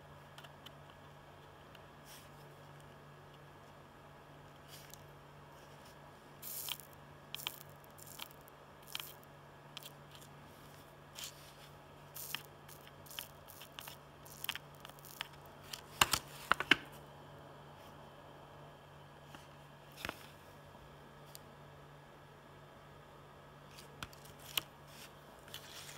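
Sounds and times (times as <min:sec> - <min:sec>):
flux sizzling under soldering iron: 0:06.4 - 0:10.1, 0:12.1 - 0:15.5.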